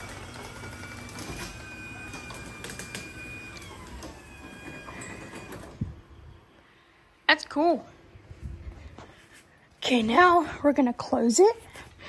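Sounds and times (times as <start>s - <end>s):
garage door opener thump: 0.0s - 6.0s
garage door opener motor: 0.0s - 6.6s.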